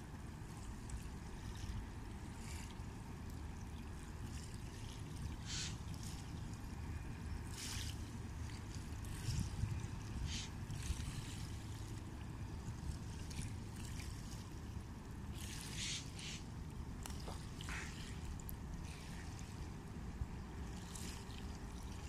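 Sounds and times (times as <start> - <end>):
river waves lapping at bank: 0.0 - 22.0
steady low rumble: 5.0 - 15.4.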